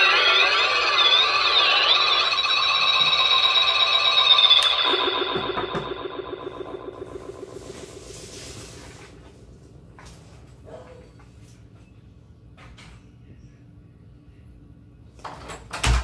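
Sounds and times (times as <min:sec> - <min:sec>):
glitchy electronic tones: 0:00.0 - 0:08.8
low pulsing tone: 0:00.0 - 0:09.0.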